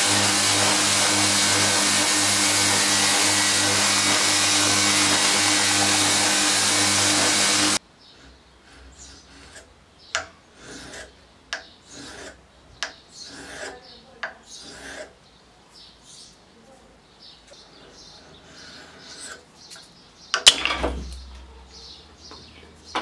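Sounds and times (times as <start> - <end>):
belt grinder motor hum: 0.0 - 9.6
blade rubbing on sharpening block: 0.0 - 15.2.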